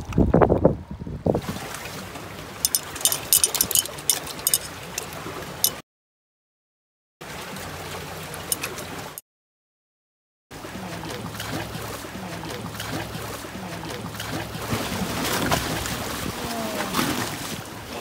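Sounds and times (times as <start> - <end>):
water lapping against a boat: 1.3 - 2.7, 7.2 - 9.2, 10.6 - 18.0.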